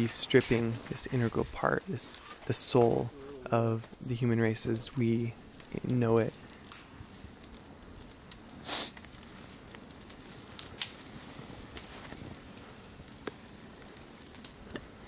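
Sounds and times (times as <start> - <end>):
scraping crunch in snow: 0.0 - 3.1
steady hiss: 0.0 - 15.0
small clicks and crackles: 3.7 - 15.0.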